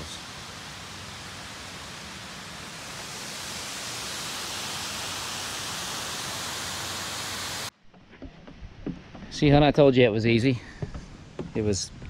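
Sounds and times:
waterfall rushing: 0.0s - 7.7s.

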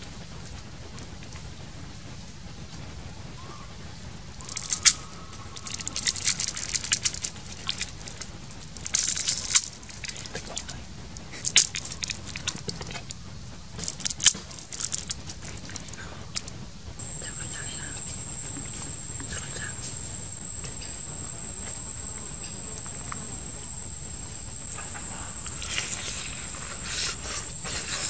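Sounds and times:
dry noodles crunching: 4.4s - 13.2s, 13.8s - 16.5s.

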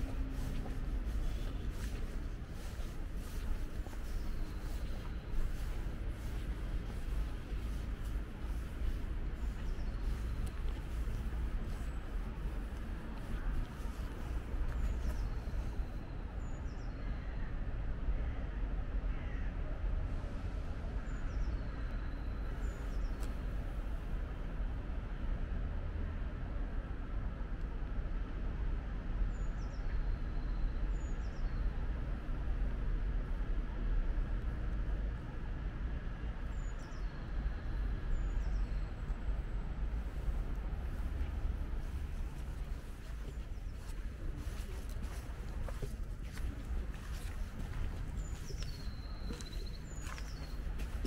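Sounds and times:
city traffic rumble: 0.0s - 51.0s
bird chirping: 41.8s - 51.0s.

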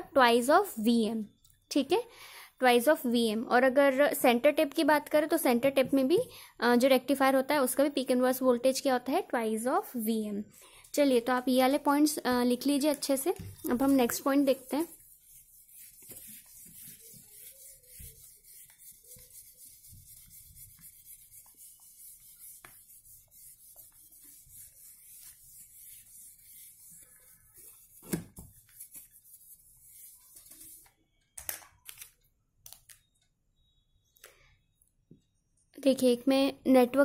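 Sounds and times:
whiteboard rubbing strokes: 13.4s - 30.9s.

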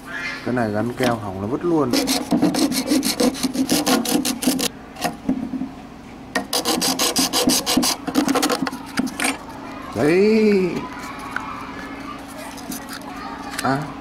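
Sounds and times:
hacksaw rasping through plastic: 1.9s - 4.7s, 6.4s - 8.7s.

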